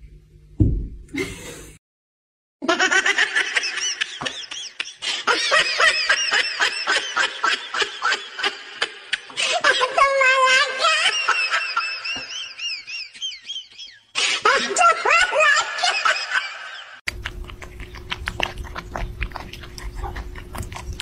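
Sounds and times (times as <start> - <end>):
high-pitched laughter: 2.6 - 17.0.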